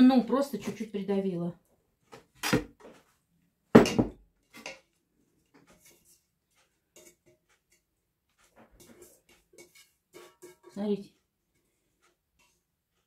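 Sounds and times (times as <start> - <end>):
aluminium pot knocking and clinking: 3.7 - 4.9, 6.9 - 7.8, 8.8 - 11.2.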